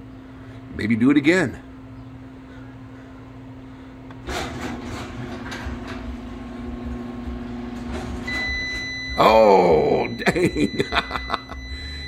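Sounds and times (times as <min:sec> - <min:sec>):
garage door opener motor: 0:04.1 - 0:09.6
high-pitched alarm tone: 0:08.3 - 0:12.0.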